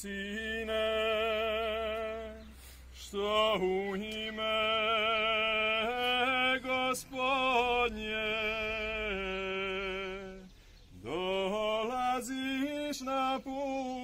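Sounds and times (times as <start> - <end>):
man singing long notes: 0.0 - 14.0
congregation singing a hymn: 11.0 - 14.0.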